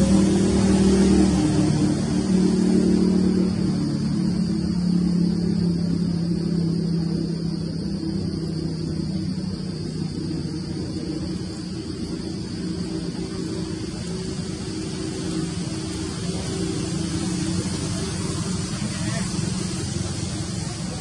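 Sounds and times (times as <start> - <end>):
high hiss: 0.0 - 21.0
low droning hum with held tones: 0.0 - 21.0.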